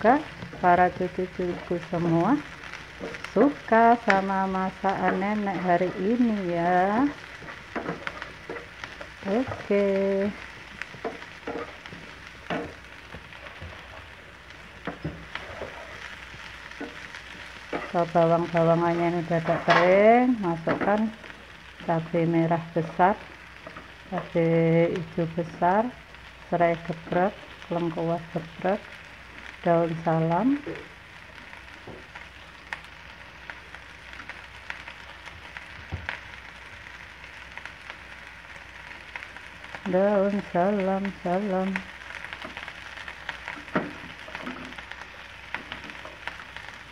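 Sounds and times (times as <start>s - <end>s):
onions sizzling in hot oil: 0.0s - 46.9s
spatula scraping and tapping pan: 7.1s - 9.8s, 10.4s - 14.0s, 14.8s - 18.0s.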